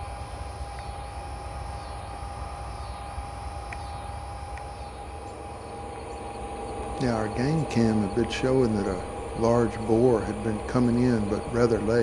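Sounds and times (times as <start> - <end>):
faint insect chirping: 0.0 - 12.0
thin steady tone: 0.0 - 12.0
faint ticks: 0.7 - 0.9, 3.7 - 4.7
low rumble: 4.9 - 12.0.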